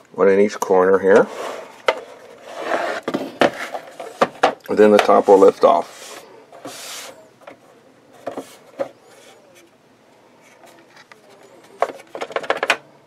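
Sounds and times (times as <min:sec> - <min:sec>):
plastic cover rubbing: 0:01.1 - 0:07.3.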